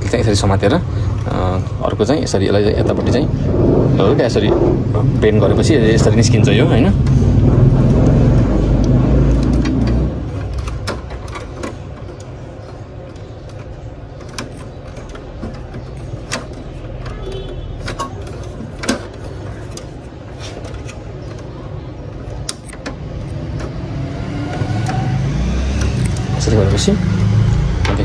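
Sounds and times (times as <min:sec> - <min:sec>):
low rumble: 0:02.7 - 0:10.3.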